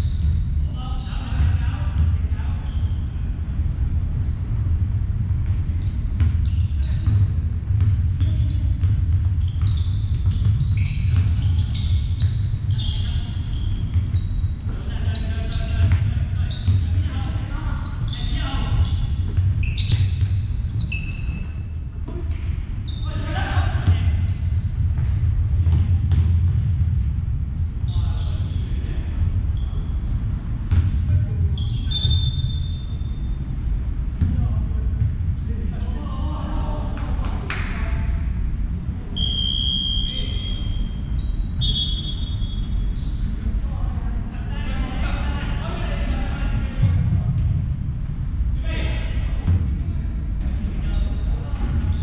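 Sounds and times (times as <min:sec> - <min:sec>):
sneakers squeaking on floor: 0:00.0 - 0:38.1, 0:39.2 - 0:52.0
basketball bouncing: 0:05.4 - 0:13.1, 0:18.7 - 0:20.5, 0:23.8 - 0:27.0, 0:30.6 - 0:31.0.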